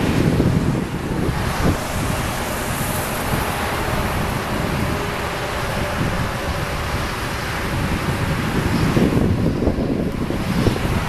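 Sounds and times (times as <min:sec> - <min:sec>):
rushing wind: 0:00.0 - 0:11.0.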